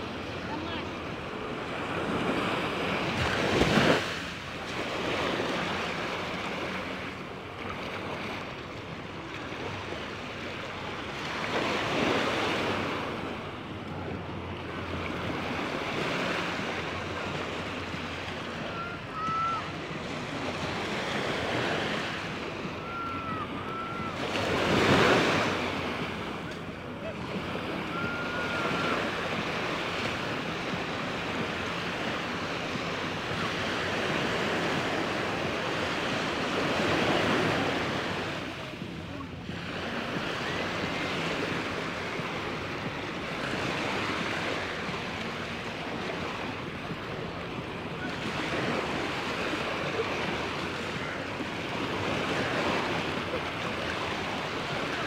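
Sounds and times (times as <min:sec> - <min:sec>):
waves breaking on beach: 0:00.0 - 0:55.0.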